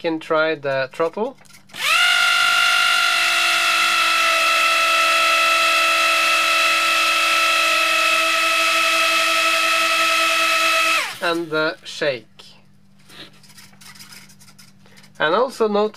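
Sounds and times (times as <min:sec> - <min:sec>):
electric motor high whine: 0:01.8 - 0:11.4.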